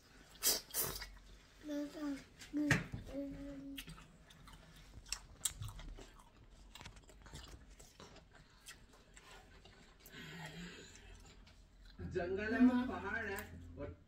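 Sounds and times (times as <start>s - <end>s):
person chewing food: 3.4s - 12.0s.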